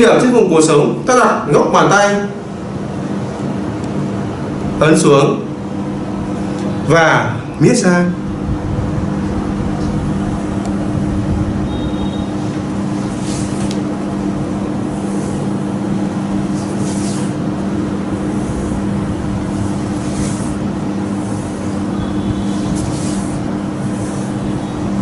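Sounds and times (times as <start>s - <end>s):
machine hum: 0.0s - 25.0s
hand swishing along skin: 12.8s - 13.9s, 14.6s - 24.6s.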